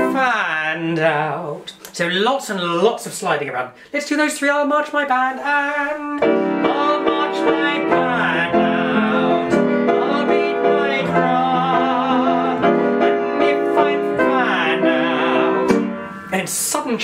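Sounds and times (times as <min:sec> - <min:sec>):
man singing with vibrato: 0:00.0 - 0:01.8, 0:03.8 - 0:17.0
piano playing chords: 0:06.2 - 0:17.0.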